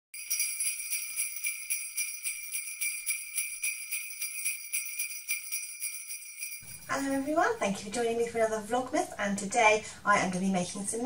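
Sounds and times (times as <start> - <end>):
jingle bells shaken: 0.2 - 7.8.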